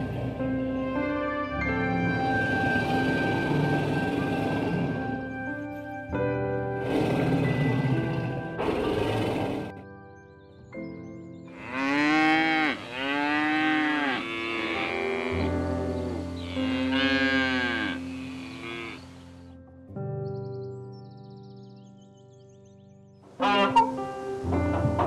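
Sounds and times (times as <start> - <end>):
soft background music: 0.0 - 25.0
cow mooing: 11.6 - 19.1, 23.4 - 24.0.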